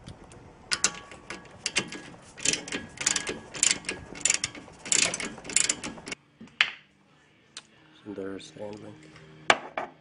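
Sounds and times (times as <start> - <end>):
ratcheting wrench clicking: 0.7 - 6.2.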